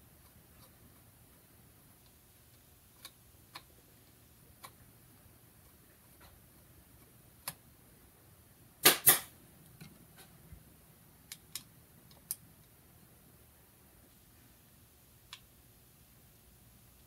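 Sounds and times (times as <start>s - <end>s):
loud sharp plastic clacks: 8.8s - 9.3s.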